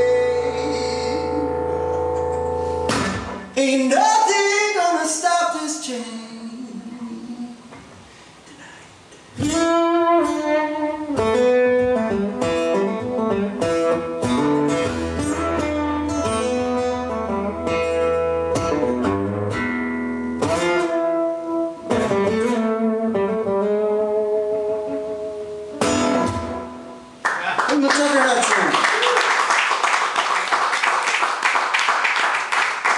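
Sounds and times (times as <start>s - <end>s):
acoustic guitar strumming: 0.0s - 3.6s, 9.4s - 27.2s.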